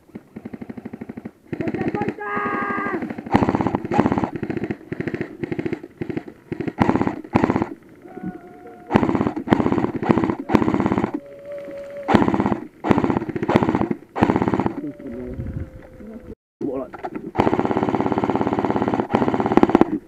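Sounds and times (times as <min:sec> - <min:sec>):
airsoft rifle automatic bursts: 0:00.2 - 0:08.0, 0:08.9 - 0:11.2, 0:12.1 - 0:14.8, 0:17.3 - 0:20.0.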